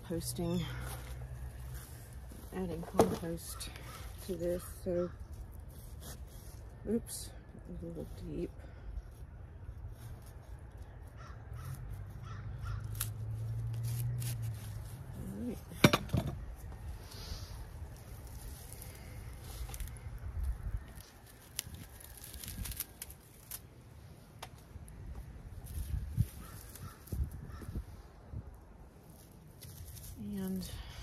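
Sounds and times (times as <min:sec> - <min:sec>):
crows cawing: 0:11.2 - 0:12.9, 0:26.4 - 0:27.8.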